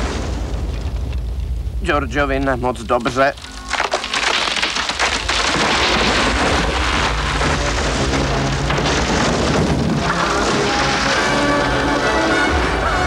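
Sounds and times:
sustained orchestral chords: 10.8 - 13.0.

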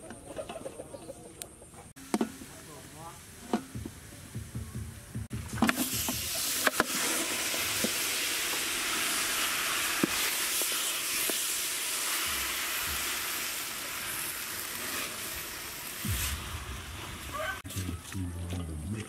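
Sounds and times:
meat sizzling in hot oil: 5.7 - 17.7.

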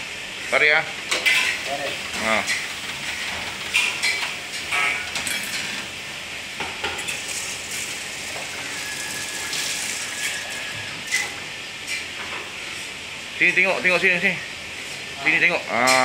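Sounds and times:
kitchen background noise: 0.5 - 16.0
metal utensils and dishes clattering: 1.1 - 5.9.

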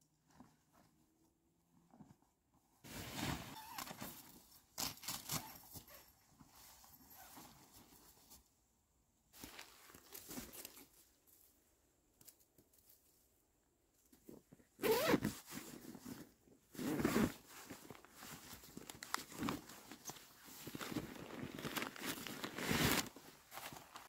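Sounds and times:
nylon fabric rustling: 2.8 - 4.4, 14.8 - 24.0
zipper pulled quickly: 14.8 - 15.4.

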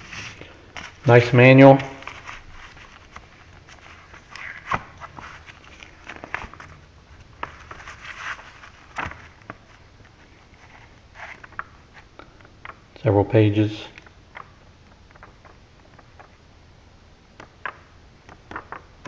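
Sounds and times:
paper pages rustling: 0.0 - 12.8.

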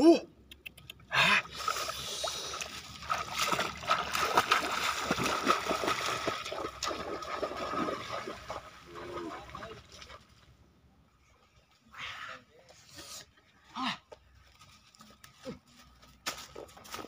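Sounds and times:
running footsteps splashing water: 1.4 - 10.5, 16.3 - 17.0.

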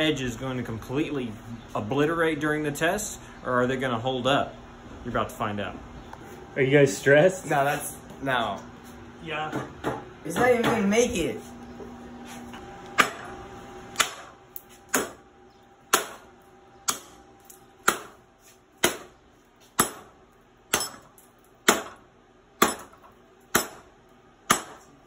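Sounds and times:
knife chopping into wood: 14.9 - 15.2, 18.8 - 19.1.

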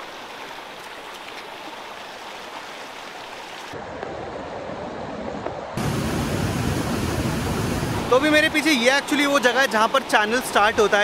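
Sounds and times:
stream rushing over rocks: 0.0 - 3.8, 5.7 - 11.0
water tumbling through cascade: 5.8 - 11.0.

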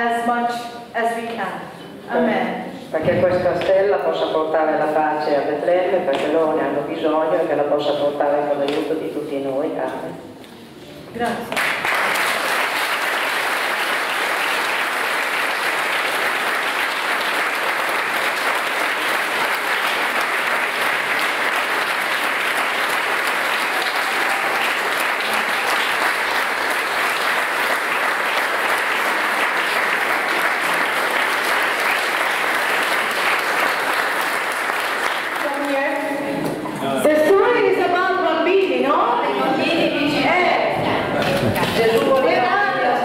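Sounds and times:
audience clapping: 11.4 - 36.2, 40.8 - 42.3.

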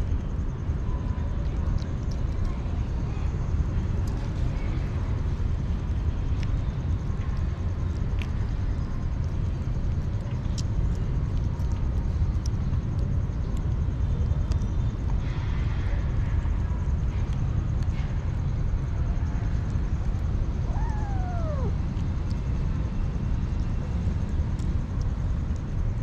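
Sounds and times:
steady low rumble: 0.0 - 26.0
kittens crunching food: 1.4 - 15.2.

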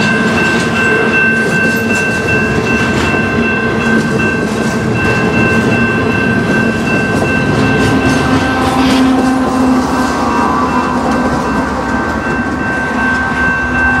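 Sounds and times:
crossing bell ringing: 0.0 - 14.0
freight train wheels clattering: 0.0 - 14.0
locomotive engine passing: 0.0 - 14.0.

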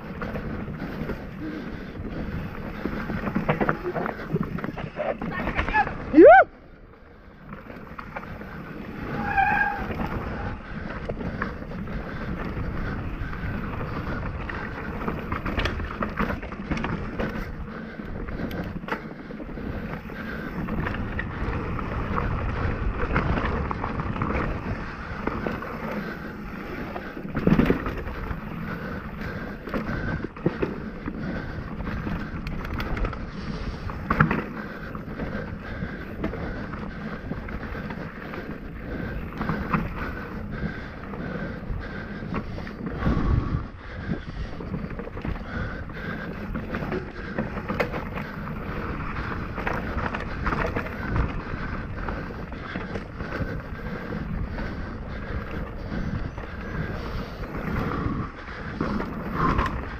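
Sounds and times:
bike tyres rolling over dirt: 0.0 - 59.9
wind on microphone: 38.6 - 59.9.

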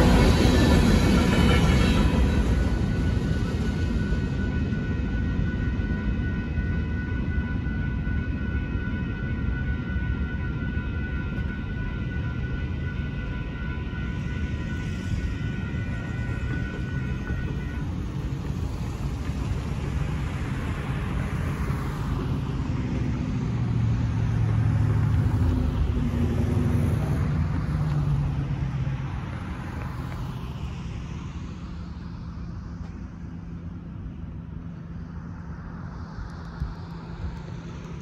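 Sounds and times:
cars passing over railroad crossing: 0.0 - 5.2, 14.0 - 34.8.

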